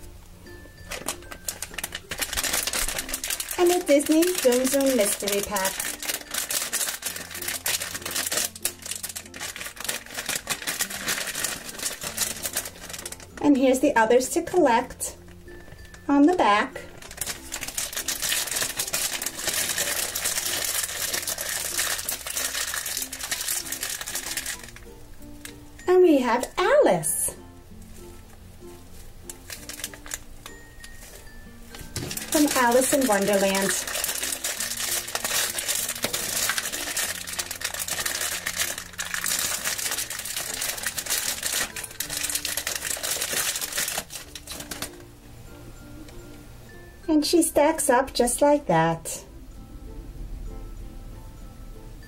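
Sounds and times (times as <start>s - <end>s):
plastic packaging crinkling: 0.5s - 13.8s, 14.8s - 25.7s, 27.9s - 45.1s.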